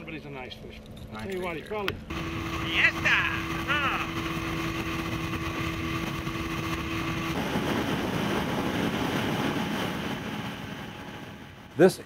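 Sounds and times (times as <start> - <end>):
outboard motor running: 1.9 - 11.6
wind and water rushing: 2.1 - 11.7.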